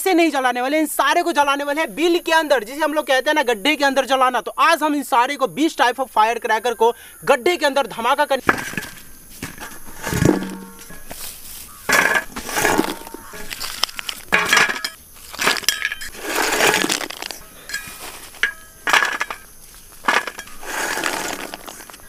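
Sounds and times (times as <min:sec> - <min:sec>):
firecracker wrappers rustling and crunching: 0:08.4 - 0:22.0.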